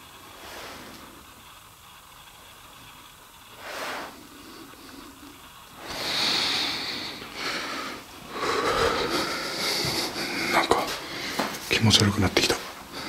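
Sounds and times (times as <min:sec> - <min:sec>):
person breathing heavily: 0:03.6 - 0:11.6, 0:12.6 - 0:13.0.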